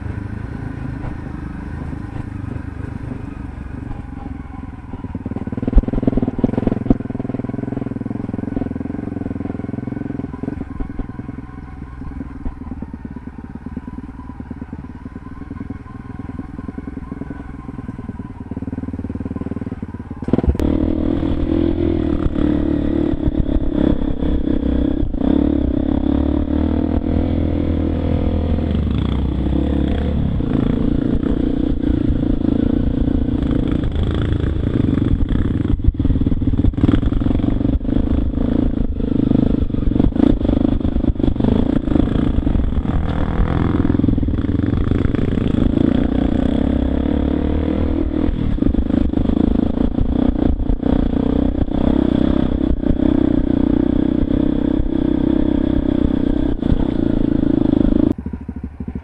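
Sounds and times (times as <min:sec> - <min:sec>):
dirt bike engine revving: 0:12.8 - 0:59.0.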